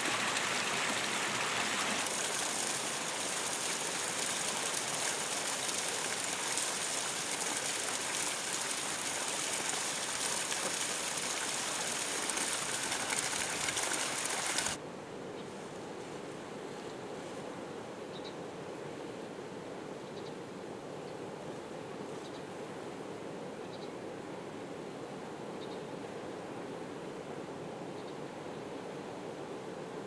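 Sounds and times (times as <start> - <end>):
water running down rock: 0.0 - 14.8
low steady hiss: 0.0 - 30.0.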